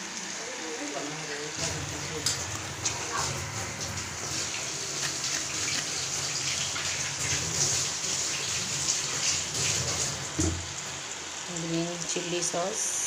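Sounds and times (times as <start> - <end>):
sauce sizzling in a pan: 0.0 - 13.0
knock: 10.4 - 10.6.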